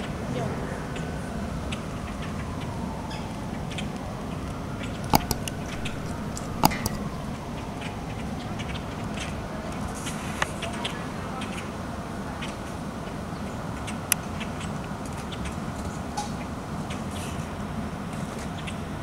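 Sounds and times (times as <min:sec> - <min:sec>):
outdoor background noise: 0:00.0 - 0:19.0
sharp clicks: 0:05.1 - 0:07.5.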